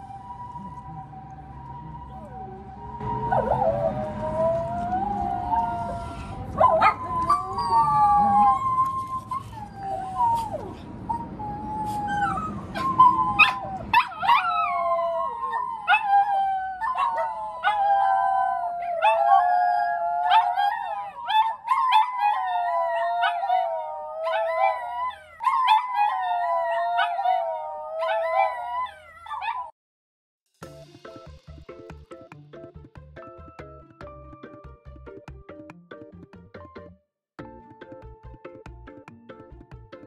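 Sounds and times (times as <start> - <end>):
dogs howling in chorus: 2.9 - 10.8, 11.4 - 29.7.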